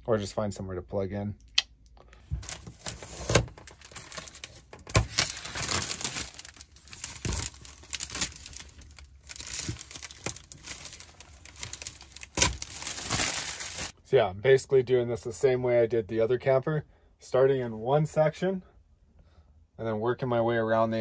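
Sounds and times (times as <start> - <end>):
plastic sheeting crinkling and tearing: 2.4 - 13.9.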